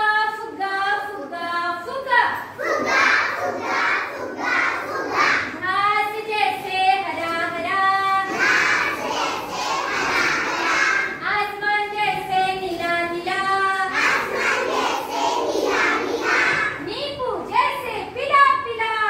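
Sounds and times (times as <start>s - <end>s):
children chanting and shouting: 2.4s - 17.8s
children singing in unison: 2.5s - 5.6s, 7.5s - 11.2s, 13.4s - 16.8s.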